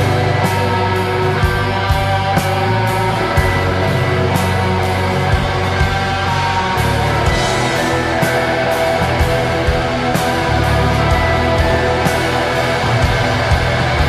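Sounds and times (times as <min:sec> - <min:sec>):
bass: 0:00.0 - 0:14.0
drums: 0:00.0 - 0:14.0
electric guitar: 0:00.0 - 0:14.0
keyboards: 0:00.0 - 0:14.0.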